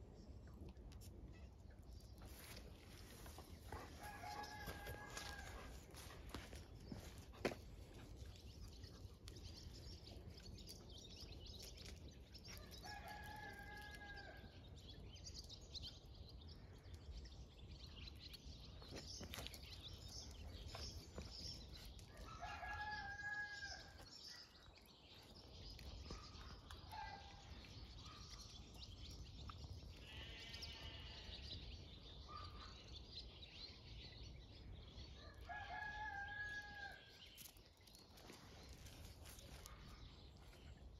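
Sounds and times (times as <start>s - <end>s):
rooster crowing: 4.0s - 5.6s.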